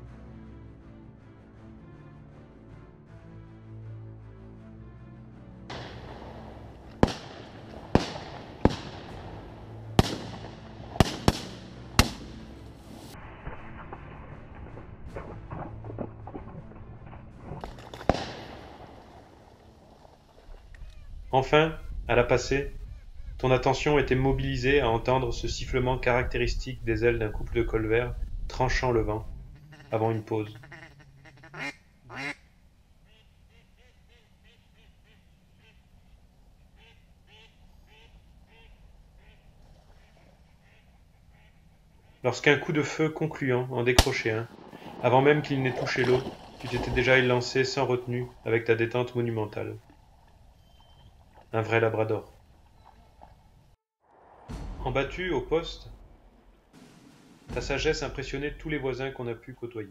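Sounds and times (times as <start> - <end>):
shotgun shots: 5.7 - 12.5, 17.0 - 19.4, 43.9 - 47.3
gunshot echo: 5.7 - 19.6, 43.9 - 47.6, 54.1 - 59.0
ducks quacking: 29.4 - 42.6.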